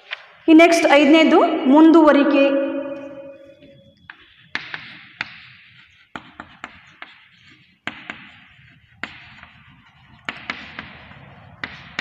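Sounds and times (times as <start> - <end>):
chalk scratching: 3.3 - 12.0
chalk tapping on chalkboard: 3.4 - 12.0.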